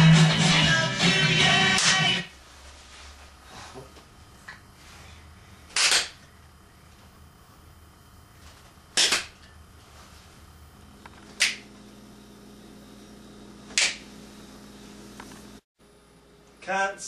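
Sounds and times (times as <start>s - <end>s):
faint steady hum: 0.0s - 17.0s
sharp hand claps: 1.7s - 2.0s, 5.8s - 6.2s, 9.0s - 9.4s, 11.4s - 11.6s, 13.8s - 14.0s.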